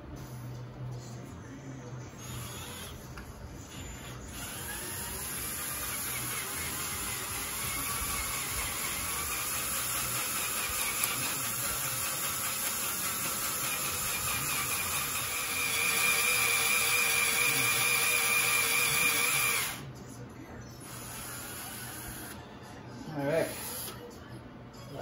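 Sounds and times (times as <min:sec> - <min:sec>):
cordless drill whining: 0:02.2 - 0:03.0, 0:03.8 - 0:19.8, 0:21.0 - 0:22.4.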